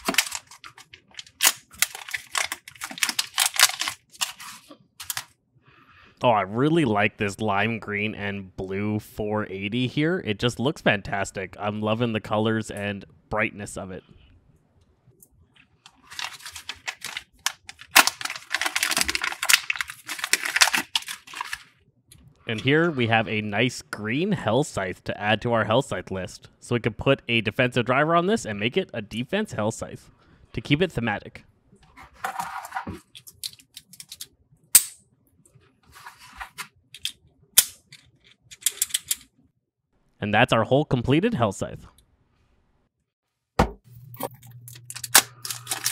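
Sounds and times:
plastic packet crinkling: 0.0s - 5.3s, 15.9s - 21.7s, 44.3s - 45.9s
plastic parts clicking together: 33.1s - 34.3s, 37.0s - 39.3s, 44.7s - 45.9s.

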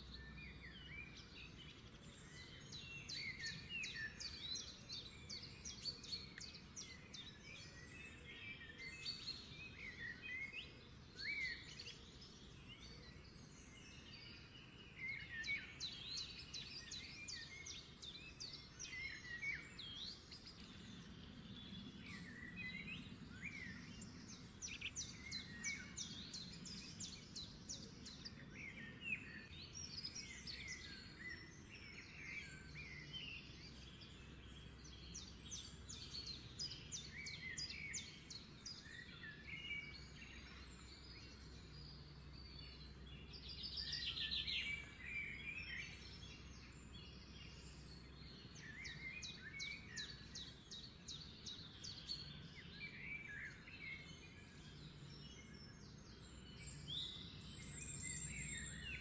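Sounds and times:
birds chirping and trilling: 0.0s - 59.0s.

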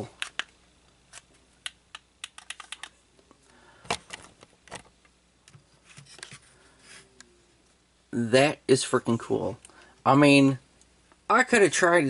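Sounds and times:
plastic parts clicking: 0.1s - 3.0s.

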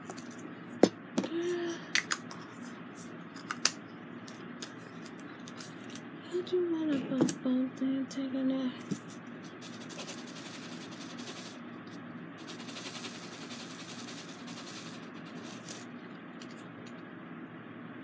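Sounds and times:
plastic beads rattling in a tray: 9.6s - 11.6s, 12.4s - 15.9s.

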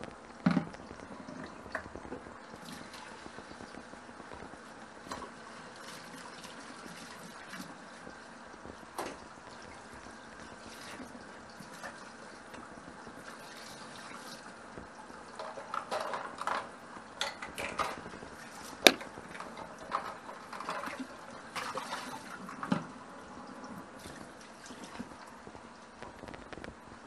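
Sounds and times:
steady liquid sound: 0.0s - 27.0s
utensil clinks and knocks: 18.9s - 19.1s.

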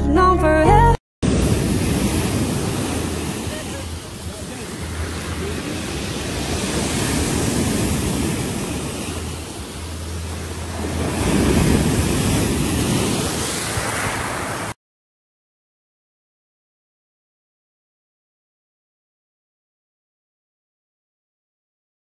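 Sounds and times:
waves washing over pebbles: 1.2s - 14.8s.

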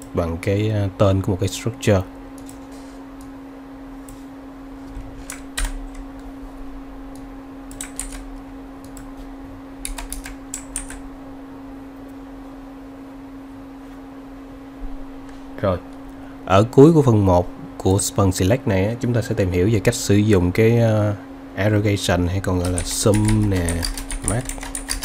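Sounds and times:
steady low hum: 0.0s - 25.0s
computer keyboard keystrokes: 5.3s - 6.1s, 7.1s - 9.1s, 9.8s - 11.0s, 22.6s - 25.0s.

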